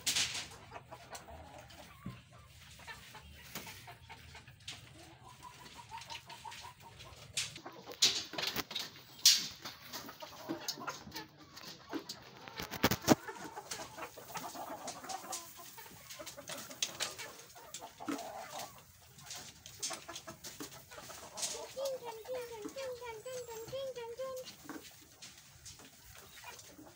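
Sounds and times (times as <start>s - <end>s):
chickens clucking: 0.0s - 26.9s.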